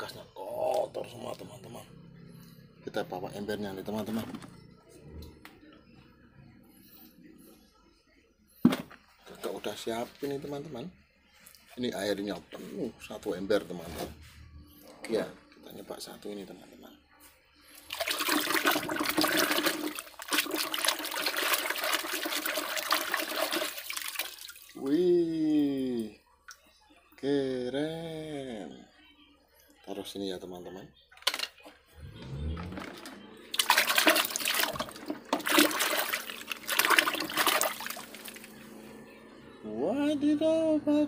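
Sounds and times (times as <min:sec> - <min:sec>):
water sloshing in a bucket: 0:17.8 - 0:24.8, 0:32.4 - 0:38.6.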